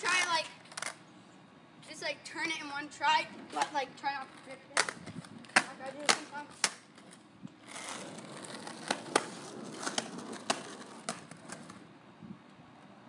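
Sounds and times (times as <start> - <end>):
skateboard wheels rolling on pavement: 0.0 - 1.2, 1.9 - 13.0
skateboard deck clacking: 4.7 - 11.8.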